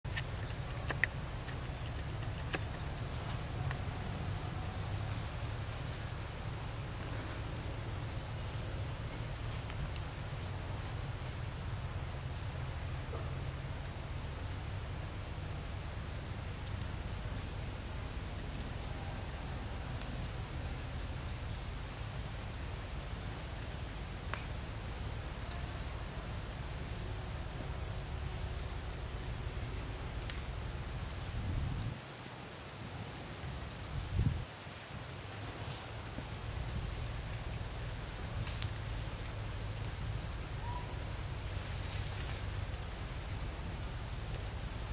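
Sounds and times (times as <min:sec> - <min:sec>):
steady low rumble: 0:00.0 - 0:32.0
insects chirping: 0:00.0 - 0:44.9.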